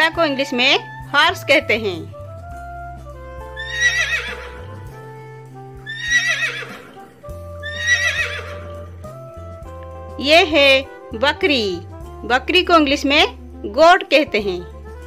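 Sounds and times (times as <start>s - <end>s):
background music with low notes: 0.0s - 15.0s
horse whinnying: 3.4s - 5.2s, 5.8s - 8.9s.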